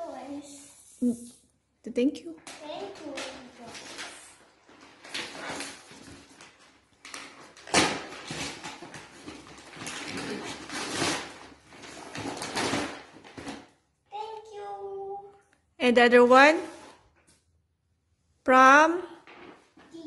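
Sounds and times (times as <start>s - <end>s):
gift bag rustling and crinkling: 2.5s - 13.7s.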